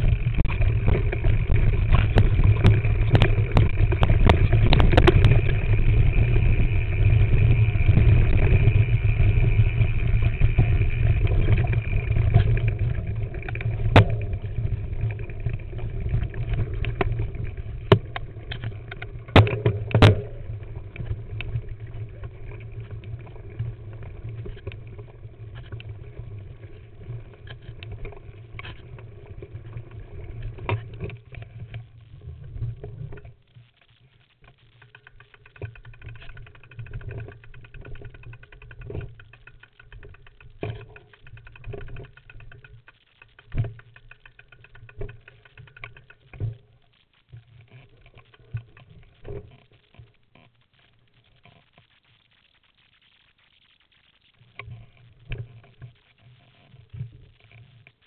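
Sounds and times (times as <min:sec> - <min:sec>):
bike rumbling and rattling: 0:00.0 - 0:31.2, 0:34.9 - 0:46.3.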